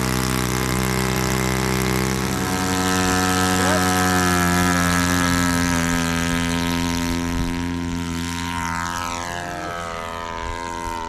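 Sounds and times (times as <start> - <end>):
model airplane engine buzzing: 0.0 - 11.0.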